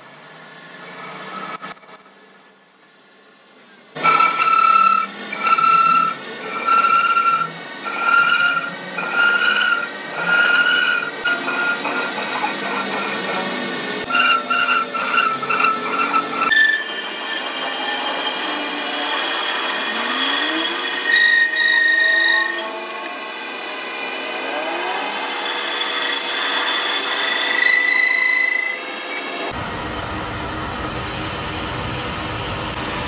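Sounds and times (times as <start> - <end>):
steady machining noise: 4.0 - 29.5
lathe cutting squeal: 4.0 - 29.6.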